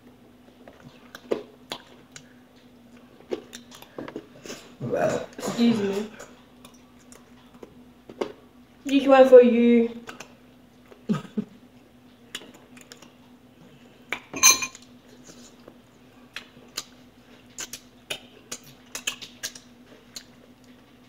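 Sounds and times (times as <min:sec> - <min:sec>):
cutlery clinking on a dish: 0:14.4 - 0:14.8.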